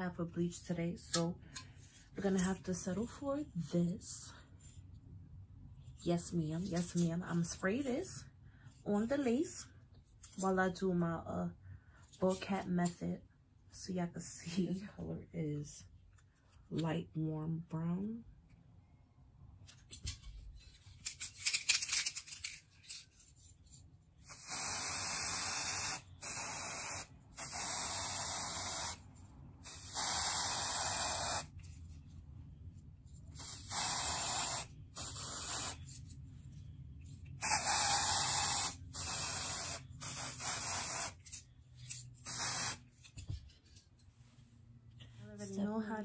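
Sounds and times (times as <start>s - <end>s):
aerosol spray hissing: 24.3s - 29.0s, 29.7s - 31.5s, 33.4s - 35.8s, 37.4s - 41.2s, 42.2s - 42.8s.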